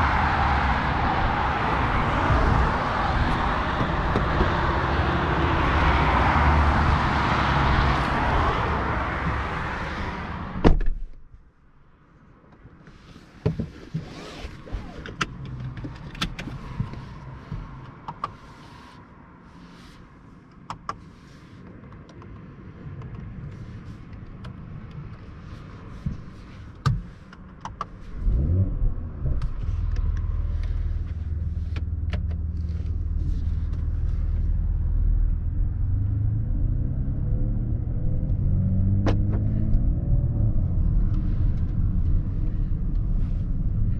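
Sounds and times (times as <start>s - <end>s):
loud rushing outdoor noise: 0.0s - 10.7s
car door shutting: 10.6s - 11.2s
car engine starting and idling: 20.5s - 43.9s.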